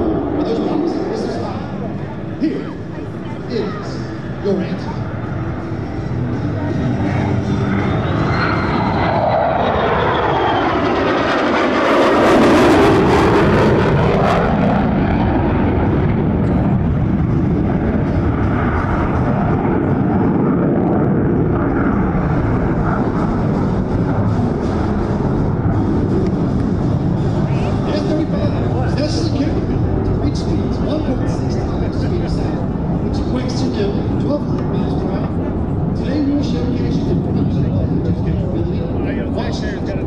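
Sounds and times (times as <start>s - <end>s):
jet engine roar: 0.0s - 40.0s
falling tone sweep: 7.4s - 15.0s.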